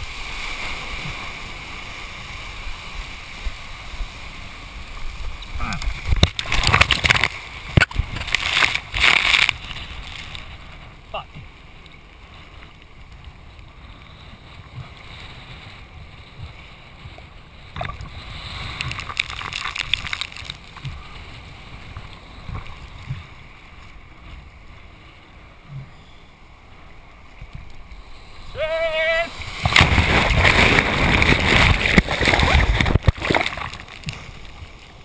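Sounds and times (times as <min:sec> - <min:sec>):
wind rumble on microphone: 0:00.0 - 0:35.0
water sloshing and splashing: 0:05.8 - 0:10.8, 0:14.5 - 0:24.4, 0:29.3 - 0:35.0.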